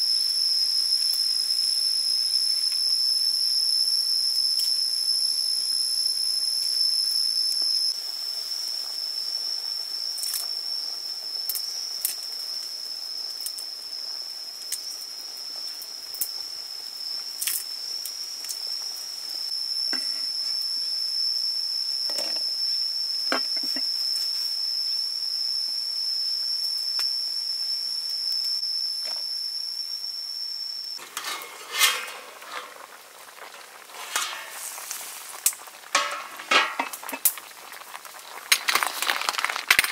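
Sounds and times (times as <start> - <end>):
high-pitched insect drone: 0.0 - 39.9
wok bubbling at a boil: 0.0 - 39.9
glass lid clattering: 36.0 - 37.3
utensils tapping and knocking: 36.0 - 37.3.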